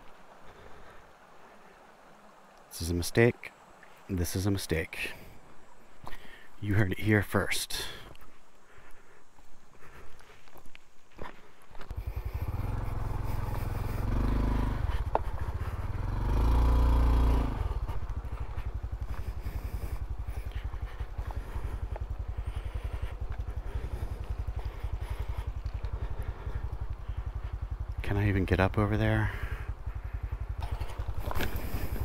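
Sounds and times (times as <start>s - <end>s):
motorcycle engine starting and idling: 11.8s - 32.0s.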